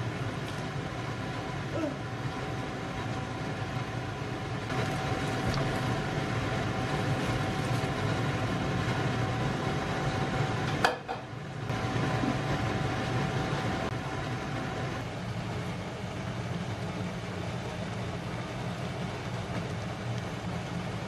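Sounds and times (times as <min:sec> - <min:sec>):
steady hum and hiss: 0:00.0 - 0:21.0
stew simmering in a wok: 0:00.0 - 0:21.0.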